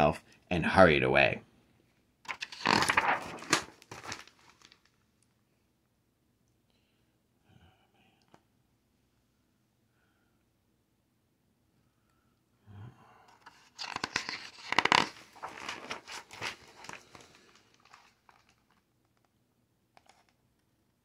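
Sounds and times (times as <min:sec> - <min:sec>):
paper page rustling: 0:02.3 - 0:05.0, 0:13.4 - 0:18.9.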